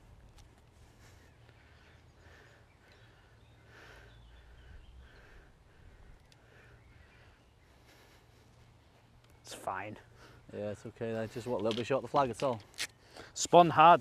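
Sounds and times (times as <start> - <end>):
distant bird calling: 0.7 - 10.9.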